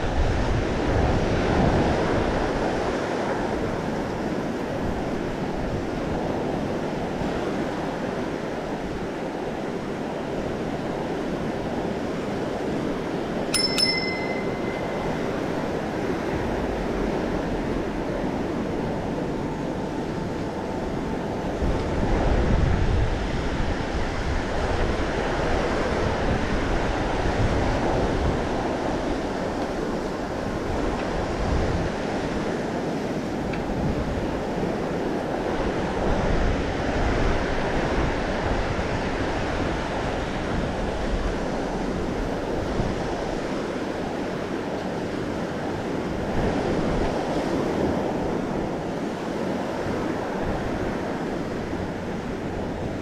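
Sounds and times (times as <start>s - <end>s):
ocean surf: 0.0s - 53.0s
bicycle bell ding: 13.6s - 16.2s
wind on microphone: 14.4s - 53.0s.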